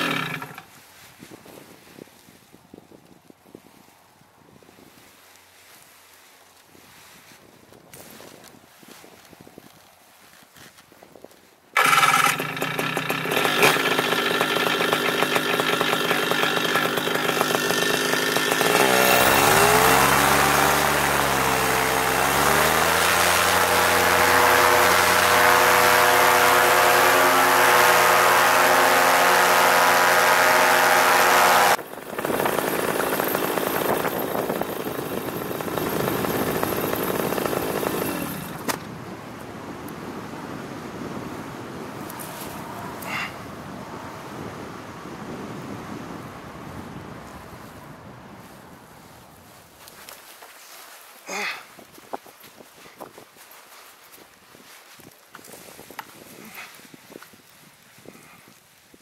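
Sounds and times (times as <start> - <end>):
paramotor engine and propeller: 0.0 - 0.7, 11.8 - 39.0, 39.6 - 46.8.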